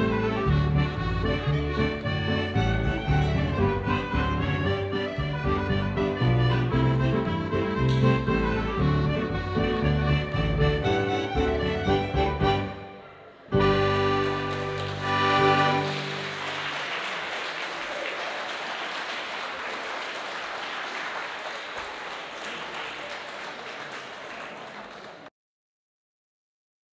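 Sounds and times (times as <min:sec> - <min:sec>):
folk dance band playing: 0:00.0 - 0:17.0
crowd applauding: 0:13.4 - 0:25.3.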